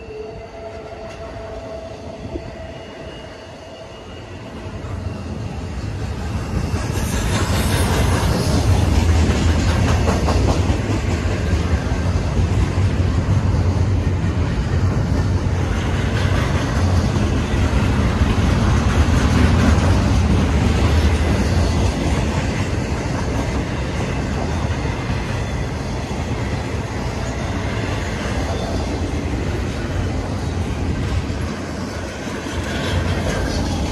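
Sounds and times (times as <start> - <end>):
train wheels rumbling on rails: 0.0 - 33.9.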